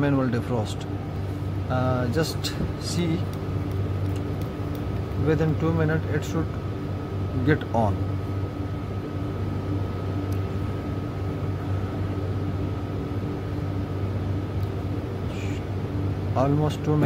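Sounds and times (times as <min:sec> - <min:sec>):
machine hum with low drone: 0:00.0 - 0:17.0
faint high whine: 0:15.1 - 0:17.0.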